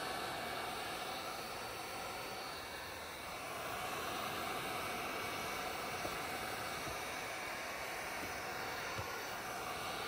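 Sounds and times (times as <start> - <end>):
heat gun hissing: 0.0 - 10.0.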